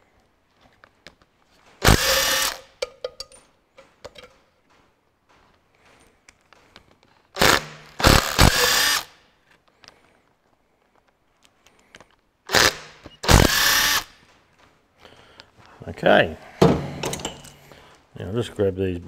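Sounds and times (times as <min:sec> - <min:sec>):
impact wrench hammering: 0:01.8 - 0:03.4, 0:07.4 - 0:09.1, 0:16.6 - 0:17.6.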